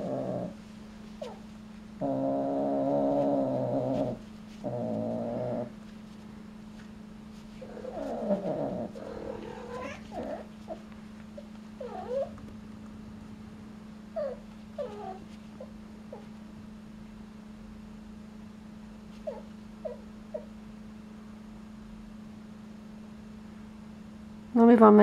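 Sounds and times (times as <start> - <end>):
cats yowling: 7.6 - 12.4, 14.2 - 16.3.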